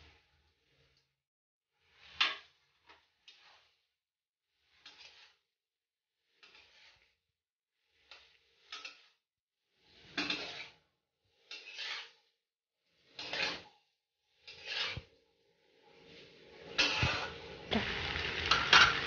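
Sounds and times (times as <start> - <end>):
spatula scraping in a steel pan: 1.8 - 3.9, 4.5 - 5.5, 6.2 - 7.2, 7.8 - 15.2, 15.9 - 19.0.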